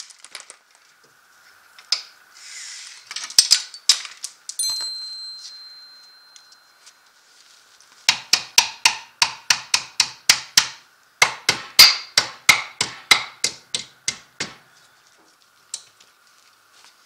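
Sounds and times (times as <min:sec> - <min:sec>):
mallet hammering on metal: 0:08.1 - 0:14.7.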